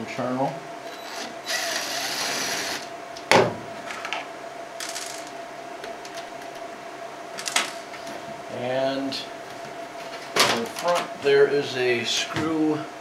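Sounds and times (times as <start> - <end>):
faint steady hum: 0.0 - 13.0
cordless driver whirring: 1.0 - 2.9.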